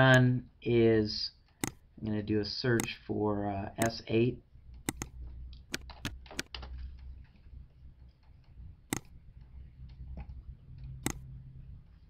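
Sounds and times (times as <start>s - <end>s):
low steady hum: 0.0s - 12.0s
computer key and mouse clicks: 1.5s - 1.9s, 2.8s - 3.0s, 3.8s - 4.0s, 4.7s - 7.4s, 8.1s - 11.3s.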